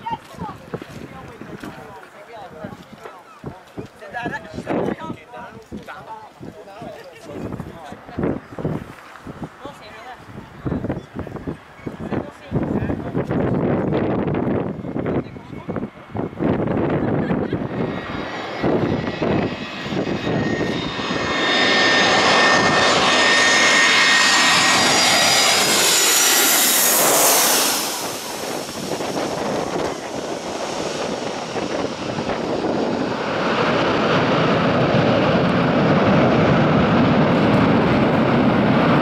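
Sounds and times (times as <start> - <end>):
jet engine whine overhead: 3.7 - 39.0
reverse thrust roar: 15.7 - 39.0.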